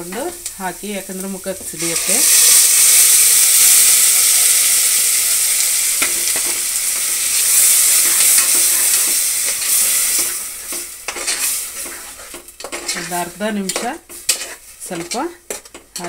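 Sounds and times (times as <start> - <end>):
masala sizzling in hot oil: 0.0 - 16.0
metal spoon scraping a pot: 7.9 - 16.0.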